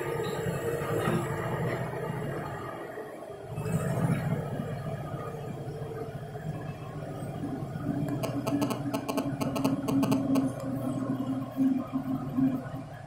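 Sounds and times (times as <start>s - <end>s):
diesel engine humming: 0.0s - 13.0s.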